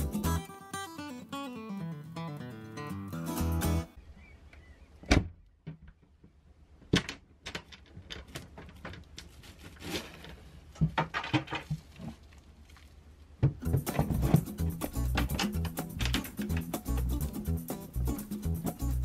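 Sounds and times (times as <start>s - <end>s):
wooden panel knocking and bumping: 13.4s - 16.7s.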